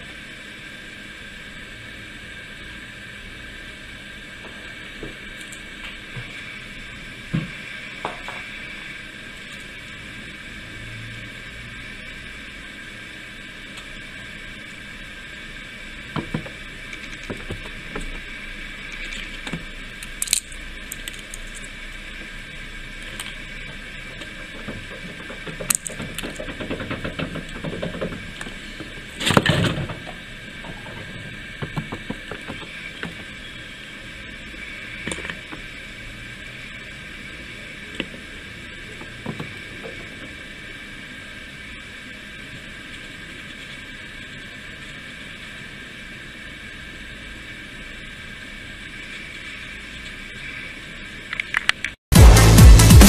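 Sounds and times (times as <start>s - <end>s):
squirrel cracking seed shells: 18.9s - 21.8s, 23.0s - 23.4s, 25.5s - 27.6s.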